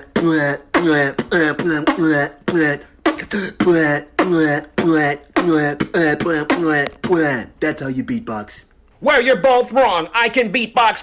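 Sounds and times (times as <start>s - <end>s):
man beatboxing: 0.0s - 8.0s.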